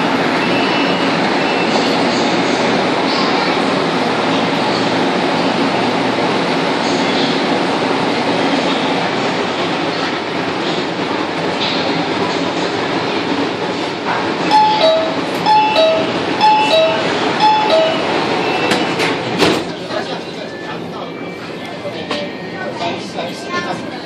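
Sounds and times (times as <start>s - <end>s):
metro train slowing to a stop: 0.0s - 24.0s
two-tone door chime: 14.5s - 18.7s.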